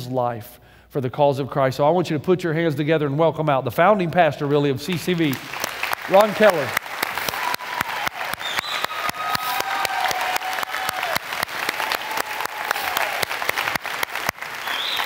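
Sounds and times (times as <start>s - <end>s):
audience clapping: 4.9s - 15.0s.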